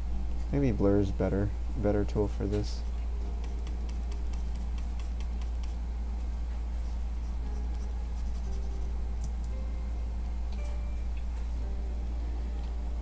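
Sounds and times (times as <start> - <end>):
low electrical hum: 0.0 - 13.0
pen stylus scratching and tapping: 3.4 - 5.8.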